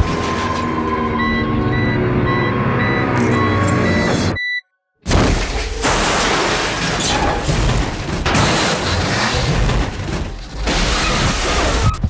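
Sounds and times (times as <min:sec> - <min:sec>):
heavy vehicle crash impacts: 0:05.0 - 0:12.0
glass shattering: 0:05.1 - 0:11.8.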